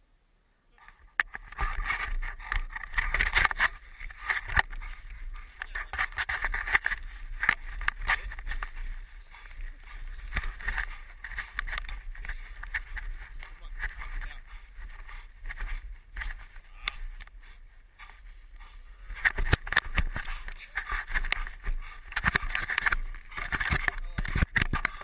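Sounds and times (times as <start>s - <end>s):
camera handling noise: 1.2s - 5.1s, 18.6s - 25.0s.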